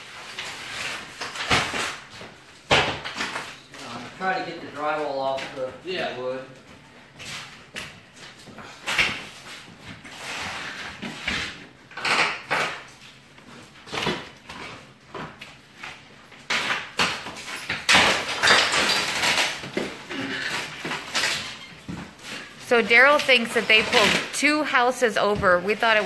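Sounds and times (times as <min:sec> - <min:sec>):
plaster cracking and crumbling: 0:00.0 - 0:04.0, 0:07.8 - 0:24.4.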